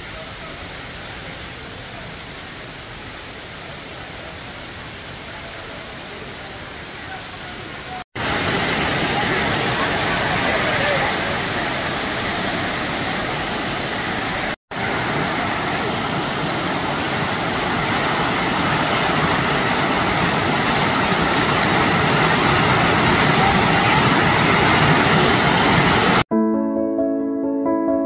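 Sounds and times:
waterfall rushing: 0.0s - 26.3s.

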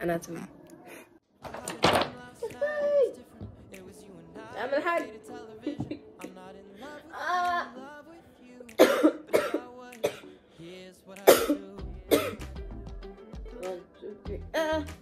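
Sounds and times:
woman coughing: 8.8s - 10.2s, 11.3s - 12.4s.

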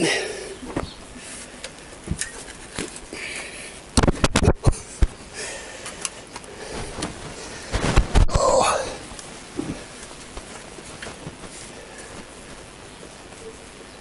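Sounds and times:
person breathing from effort: 4.9s - 8.0s.

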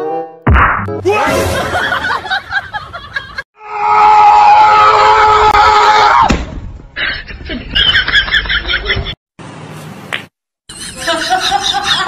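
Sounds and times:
loud scream: 3.6s - 6.3s.

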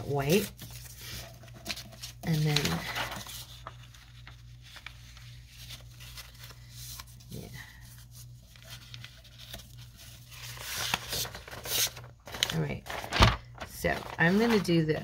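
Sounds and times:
book page rustling and tapping: 8.5s - 14.8s.

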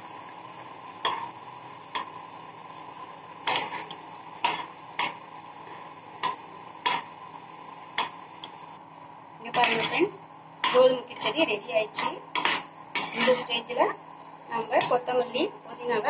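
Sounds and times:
faint steady hum: 0.0s - 16.0s
metal ladle stirring in pan: 3.3s - 7.2s, 9.5s - 13.6s.

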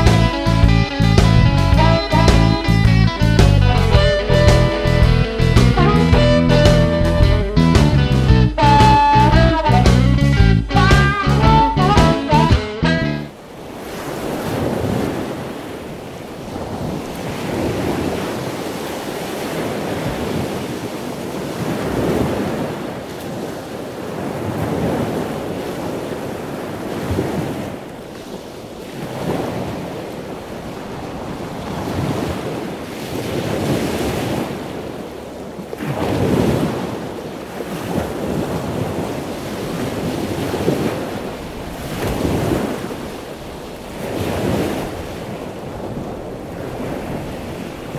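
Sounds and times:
wind: 0.0s - 12.4s, 13.2s - 47.9s
surf washing onto beach: 13.4s - 47.9s.

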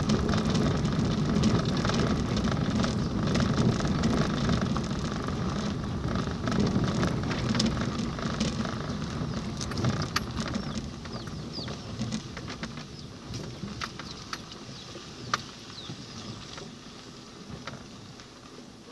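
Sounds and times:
clicks and knocks in car: 0.0s - 14.5s
car engine and tyres rumbling: 0.0s - 18.9s.

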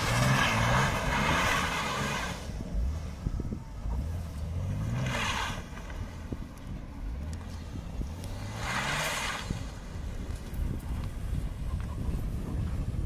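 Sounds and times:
car engine revving: 0.0s - 11.6s.

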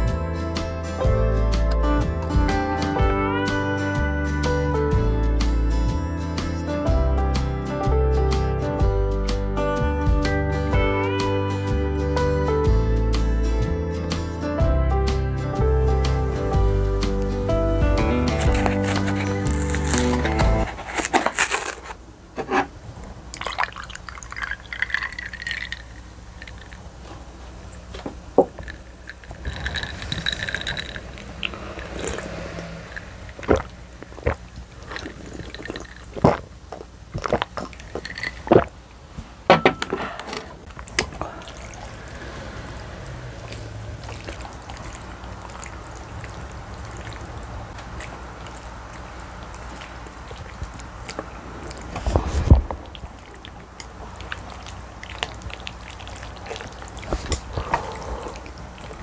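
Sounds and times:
drink pouring into a glass mug: 23.4s - 26.9s, 28.6s - 36.4s, 37.2s - 38.7s
sipping and swallowing clicks: 28.4s - 38.8s, 43.0s - 59.0s.

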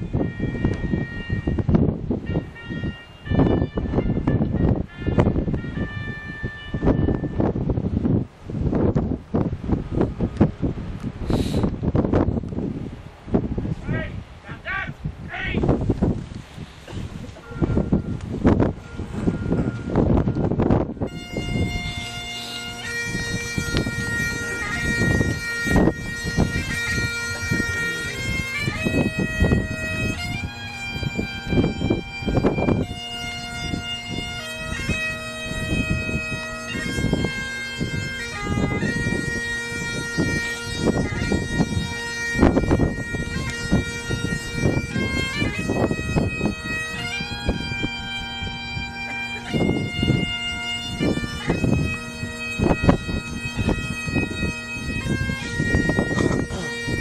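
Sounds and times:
bagpipes playing slow tune: 0.0s - 8.2s, 17.1s - 57.0s
wind rumble on microphone: 0.0s - 57.0s.

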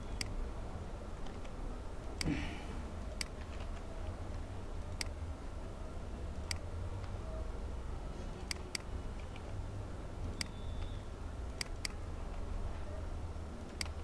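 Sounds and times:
steady low hum: 0.0s - 14.0s
computer mouse clicking: 0.1s - 0.4s, 3.1s - 5.2s, 6.4s - 7.2s, 8.4s - 9.6s, 10.3s - 12.0s, 13.6s - 14.0s.

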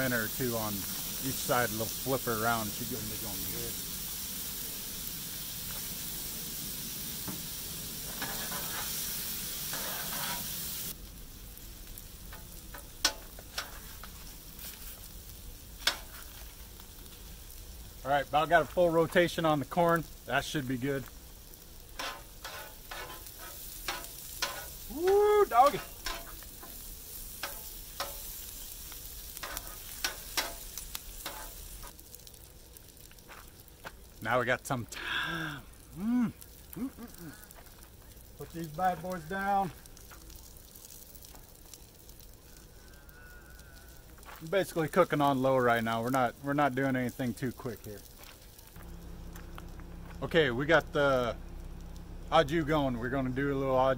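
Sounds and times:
steak sizzling on a griddle: 0.0s - 53.9s
metal spatula clicking on griddle: 12.3s - 13.8s, 15.8s - 16.1s, 22.0s - 28.4s, 29.0s - 31.6s.

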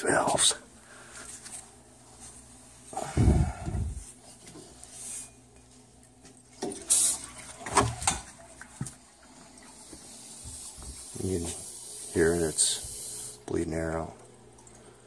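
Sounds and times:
air hissing from vent: 3.0s - 4.0s, 6.9s - 7.2s, 9.9s - 13.5s.

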